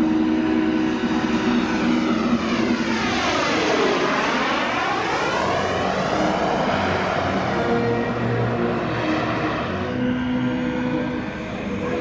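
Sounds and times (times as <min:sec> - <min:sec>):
model plane engines humming: 0:00.0 - 0:12.0
whoosh of model passing: 0:01.7 - 0:09.7.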